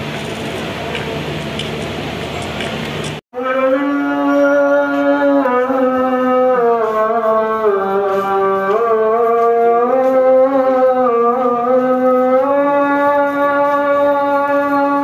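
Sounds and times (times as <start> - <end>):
sustained instrumental tone sliding in pitch: 3.4 - 15.0.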